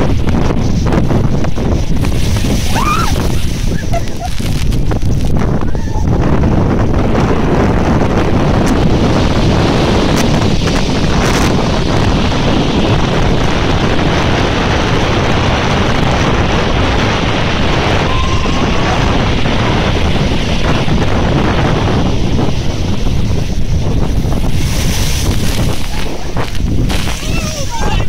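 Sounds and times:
heavy surf breaking on shingle: 0:00.0 - 0:28.0
wind buffeting microphone: 0:00.0 - 0:28.0
hiss of washing foam: 0:01.8 - 0:04.8, 0:23.2 - 0:28.0.

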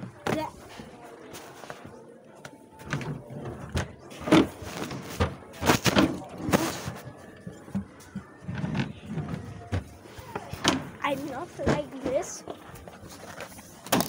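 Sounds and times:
drawers opening and shutting: 0:02.8 - 0:11.0.

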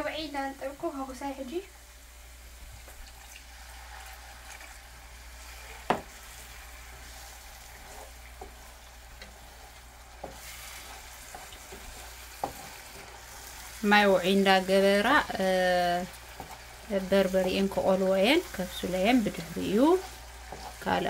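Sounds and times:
food sizzling in a pan: 0:00.0 - 0:21.0.

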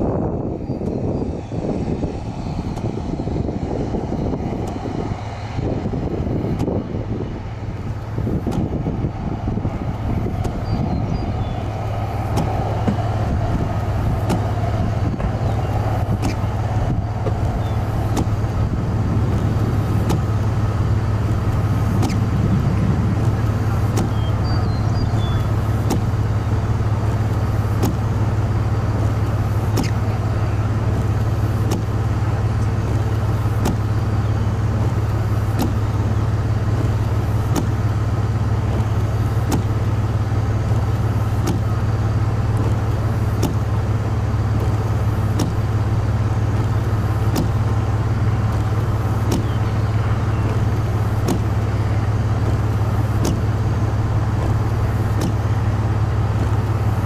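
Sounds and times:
car road and engine rumble: 0:00.0 - 0:57.0
short clicks: 0:21.5 - 0:22.3.

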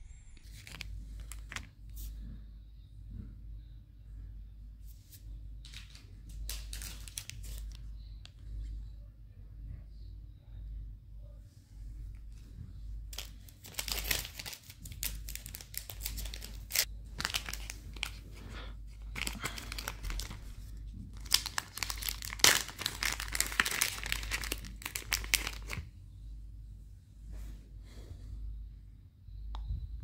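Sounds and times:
plastic bag crinkling: 0:05.6 - 0:07.8, 0:13.1 - 0:25.8.

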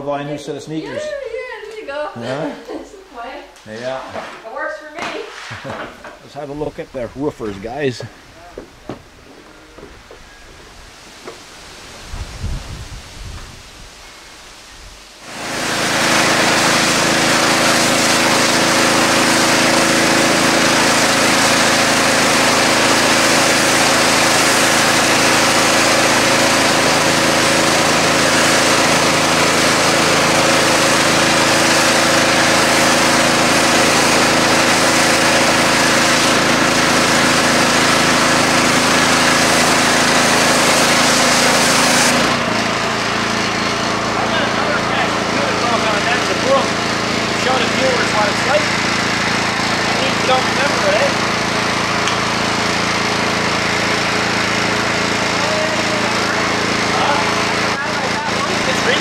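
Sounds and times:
pressure washer spraying: 0:15.2 - 0:59.0.

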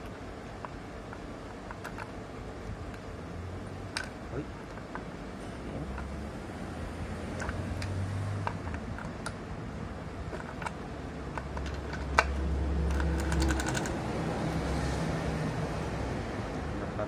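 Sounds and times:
low steady hum: 0:00.0 - 0:17.0
metal gears clicking and clinking: 0:10.2 - 0:14.0.

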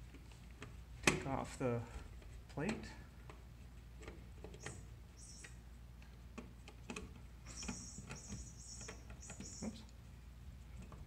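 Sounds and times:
screwdriver scraping squeaks: 0:07.5 - 0:09.8.

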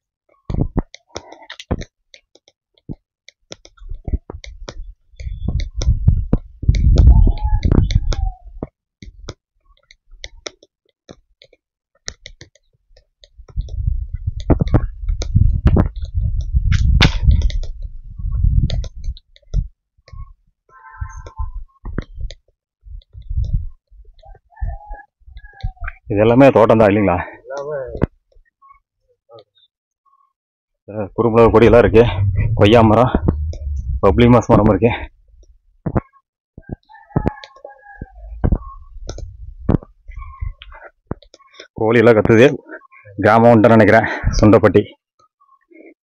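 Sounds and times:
low microphone rumble: 0:31.3 - 0:35.4.

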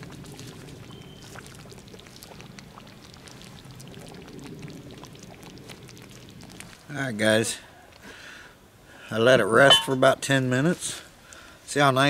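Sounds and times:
campfire pops and crackles: 0:00.0 - 0:06.9
stew bubbling: 0:00.0 - 0:10.2.

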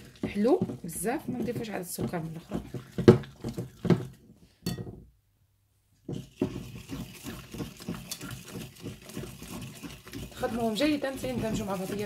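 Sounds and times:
whisk clinking in glass bowl: 0:06.1 - 0:12.0.

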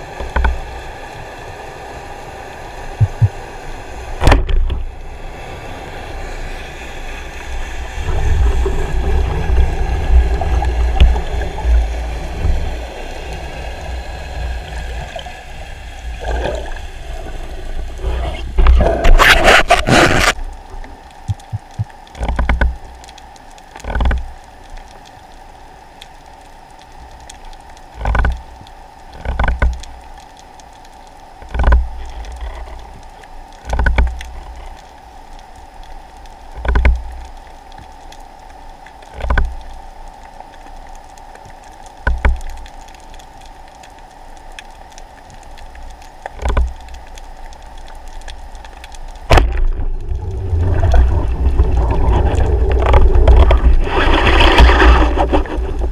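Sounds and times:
rushing water: 0:00.0 - 0:55.9
steady underwater hum: 0:00.0 - 0:55.9.

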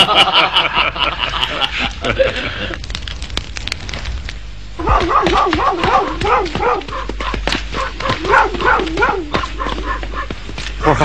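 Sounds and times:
dogs yelping and whining: 0:04.8 - 0:10.4.

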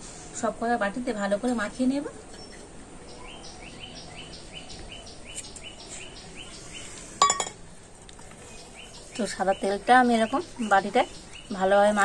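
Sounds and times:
metal bowls clinking: 0:07.2 - 0:07.6
bird chirping rapidly: 0:08.4 - 0:12.0.

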